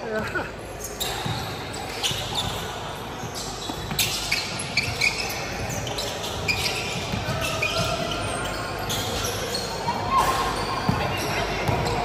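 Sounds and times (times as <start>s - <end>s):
sneakers squeaking on court floor: 0.0s - 12.0s
basketball bouncing: 10.9s - 12.0s.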